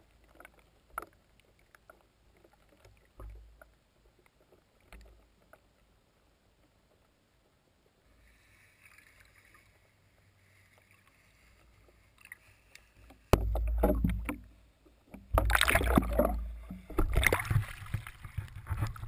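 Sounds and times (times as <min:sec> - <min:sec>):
faint underwater hiss: 0:08.0 - 0:13.8
water sloshing against camera: 0:08.6 - 0:19.0
knocks underwater: 0:13.3 - 0:19.0.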